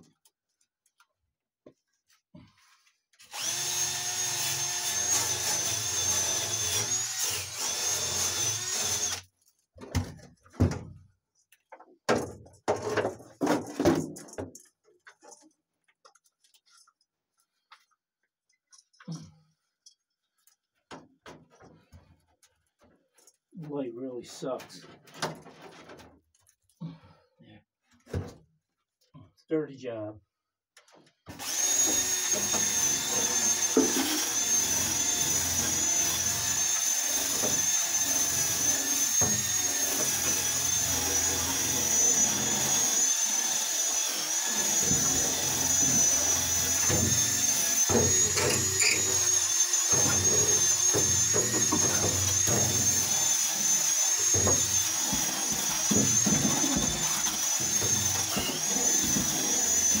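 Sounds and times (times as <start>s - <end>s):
power tool grinding metal: 3.2s - 9.3s, 31.3s - 60.0s.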